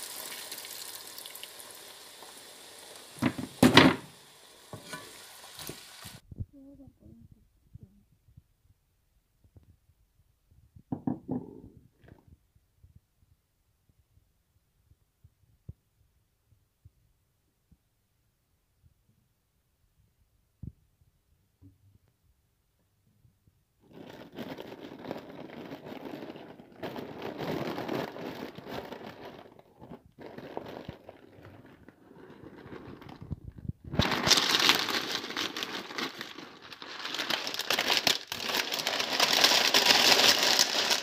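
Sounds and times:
broth bubbling in a frying pan: 0:00.0 - 0:06.2.

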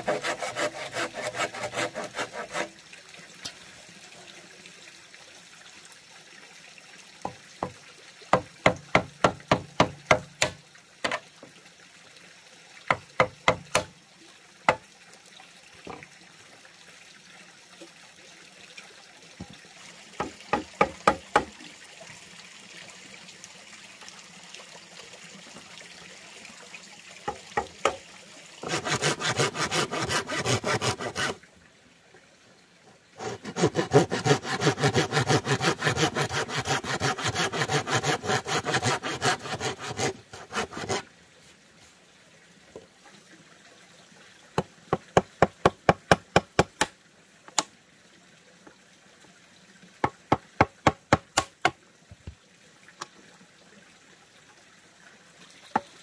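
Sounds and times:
hand saw cutting bamboo: 0:00.0 - 0:02.7, 0:08.3 - 0:10.6, 0:13.2 - 0:13.9, 0:28.6 - 0:31.4, 0:33.2 - 0:41.0.

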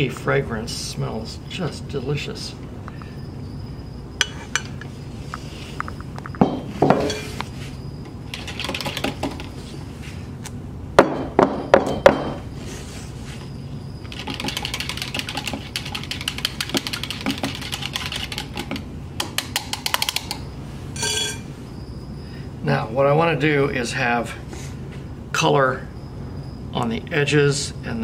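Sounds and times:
stirring clicks: 0:08.3 - 0:09.6, 0:14.0 - 0:20.4.

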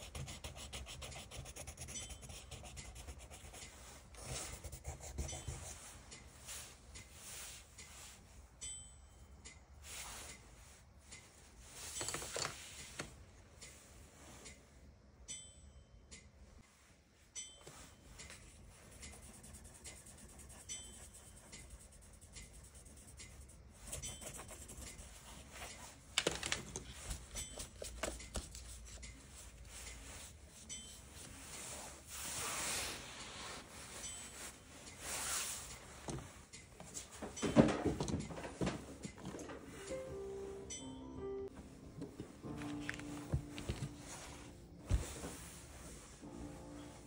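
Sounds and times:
pencil scratching on paper: 0:00.0 - 0:06.0, 0:18.8 - 0:26.0.

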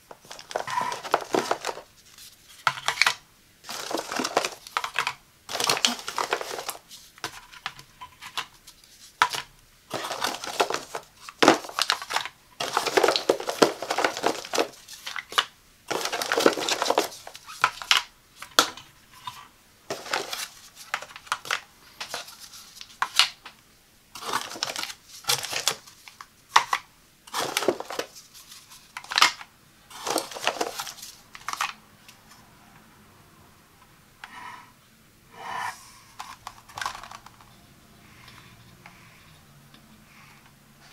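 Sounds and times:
plastic pods rustling: 0:00.0 - 0:23.5, 0:24.1 - 0:31.8, 0:36.2 - 0:38.4.

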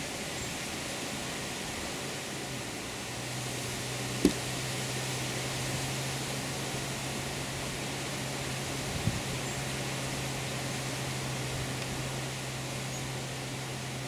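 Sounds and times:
sharp thump: 0:04.2 - 0:04.5.

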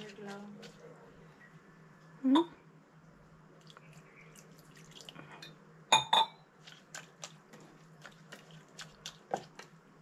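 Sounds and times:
hand stirring wet mix: 0:00.0 - 0:01.3, 0:06.5 - 0:10.0.

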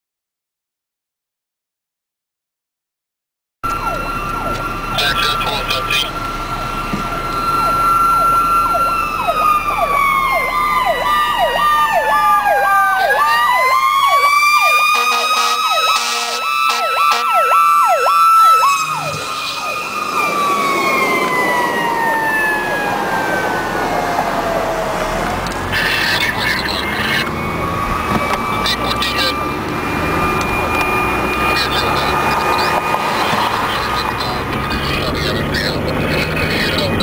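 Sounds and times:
wailing siren: 0:03.6 - 0:37.0
yelping siren: 0:03.6 - 0:37.0.

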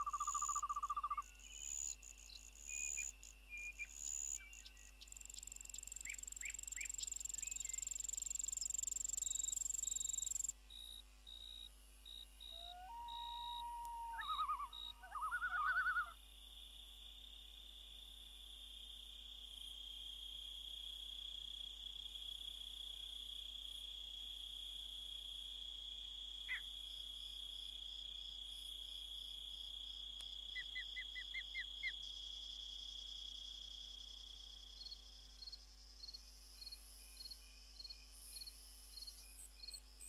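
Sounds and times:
crickets trilling: 0:00.0 - 0:16.2.

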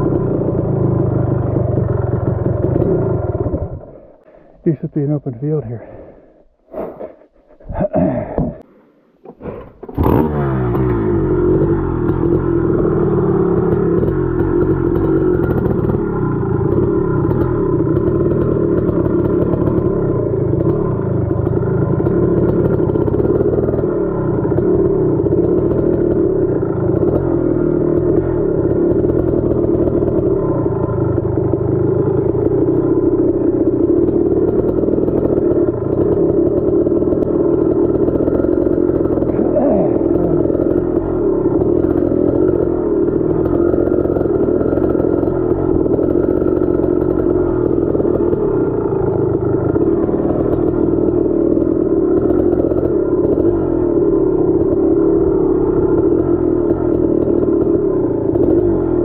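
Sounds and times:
dirt bike engine running: 0:00.0 - 0:06.2, 0:09.3 - 0:59.0.

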